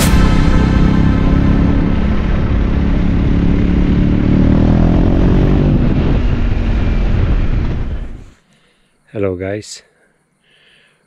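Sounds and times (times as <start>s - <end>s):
motorcycle engine running: 0.0s - 8.3s.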